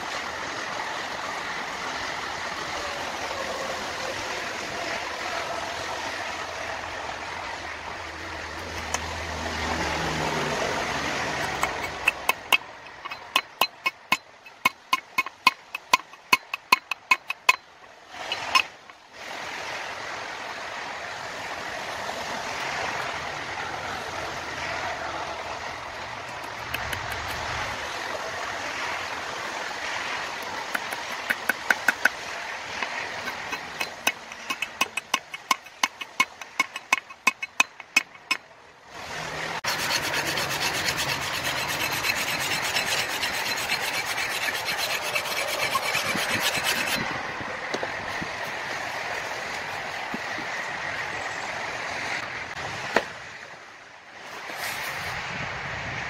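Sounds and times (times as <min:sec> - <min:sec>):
metal file rasping on steel: 0:11.3 - 0:17.6, 0:18.2 - 0:18.8, 0:32.8 - 0:38.4, 0:39.6 - 0:47.1
sharp clicks and taps: 0:11.4 - 0:17.6, 0:30.6 - 0:32.2, 0:33.2 - 0:38.4.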